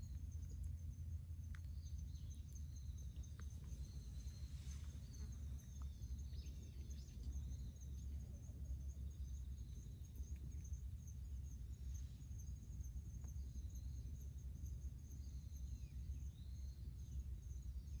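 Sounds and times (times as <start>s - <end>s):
insects trilling: 0.0s - 18.0s
low steady rumble: 0.0s - 18.0s.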